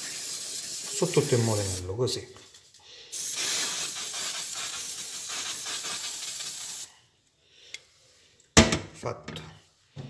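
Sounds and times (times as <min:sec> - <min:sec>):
aerosol spray hissing: 0:00.0 - 0:02.0, 0:03.1 - 0:06.9.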